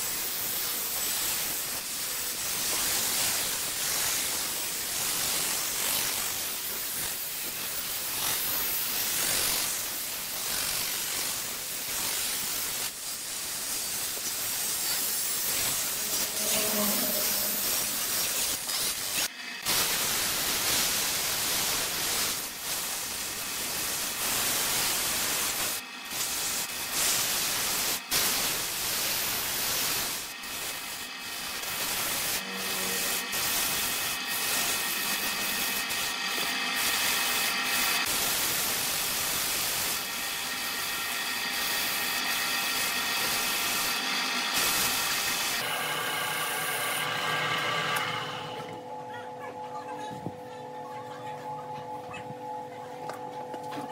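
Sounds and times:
sandpaper rubbing spinning wood: 0.0 - 48.6
wood lathe running: 29.4 - 48.8.

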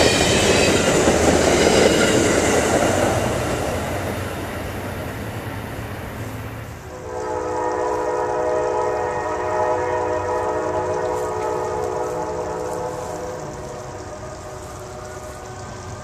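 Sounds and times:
low train rumble: 0.0 - 16.0
locomotive air horn blast: 6.9 - 16.0.

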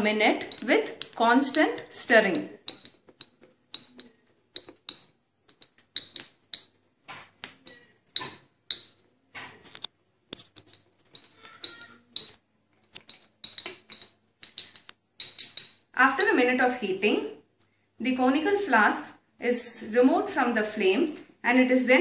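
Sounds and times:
glass rod clinking against flask: 13.0 - 15.8.

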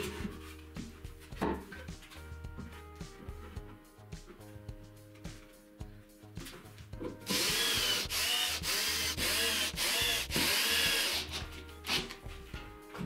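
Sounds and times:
cordless drill driving screws: 7.3 - 12.0.

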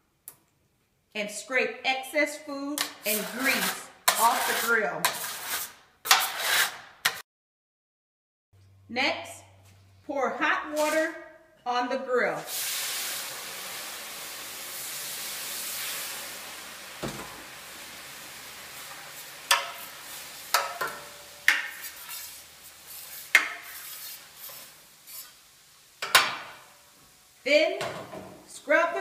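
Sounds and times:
scraper scraping steel: 3.0 - 7.2
water sizzling on hot griddle: 12.4 - 27.5.

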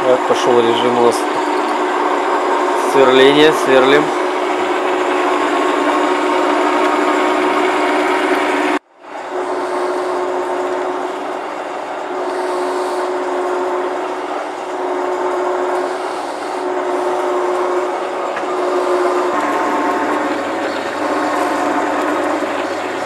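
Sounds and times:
lathe whirring: 0.0 - 23.0.

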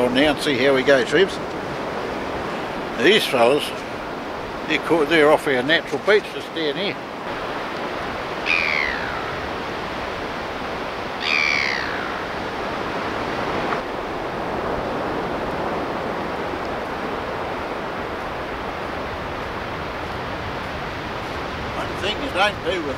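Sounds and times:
surf washing: 0.0 - 22.9
gull calls: 8.4 - 9.5, 11.2 - 12.4.

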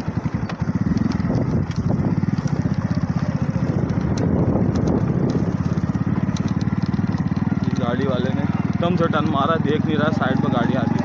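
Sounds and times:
small motorcycle engine running: 0.0 - 11.0.

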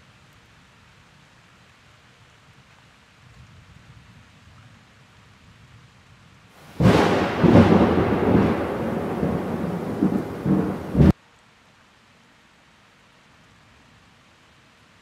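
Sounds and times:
rain-like hiss: 0.0 - 15.0
thunderclap rumbling: 6.6 - 11.2.

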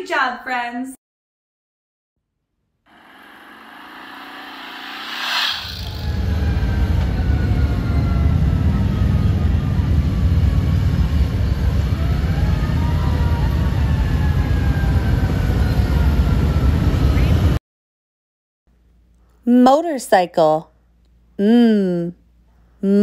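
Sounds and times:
rush of noise: 2.9 - 7.0.

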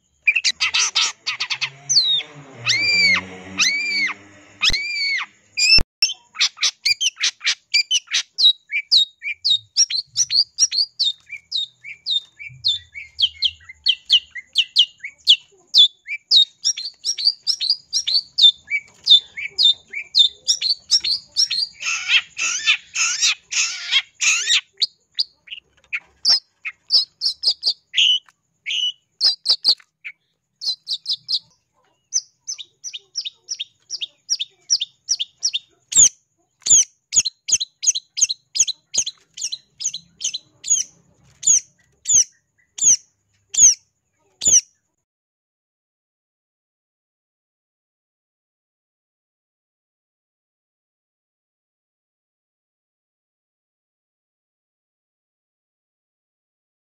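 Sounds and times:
bird chirping and chattering: 0.0 - 44.7.

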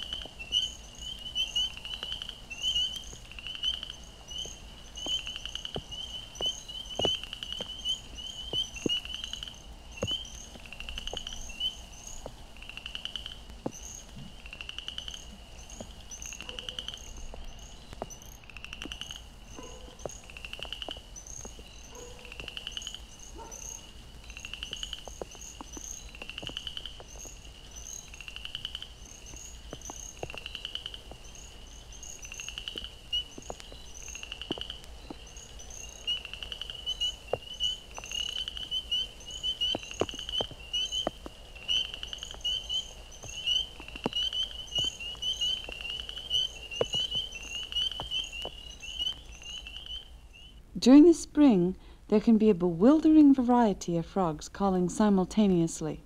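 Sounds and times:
high rising frog peeps: 0.0 - 50.6
raindrops ticking on microphone: 0.0 - 53.6
faint dog barks: 16.4 - 16.9, 19.5 - 20.1, 21.9 - 22.5, 23.3 - 23.8.

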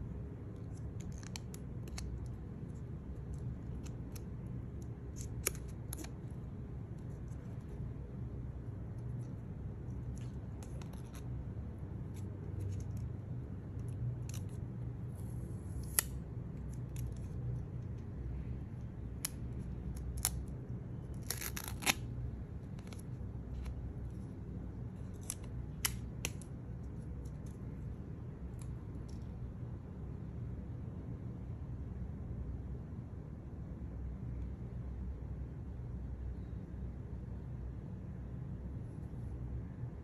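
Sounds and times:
plastic film clicks and crinkles: 19.2 - 22.1.

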